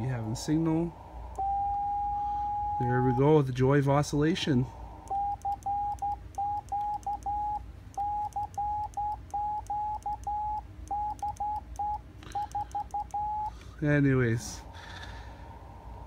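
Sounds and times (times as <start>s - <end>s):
morse code tone: 1.4s - 3.4s, 5.1s - 13.6s.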